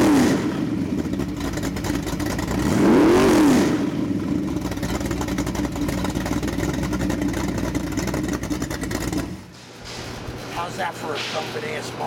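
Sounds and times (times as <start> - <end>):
car engine idling: 0.7 - 2.8, 3.8 - 9.5.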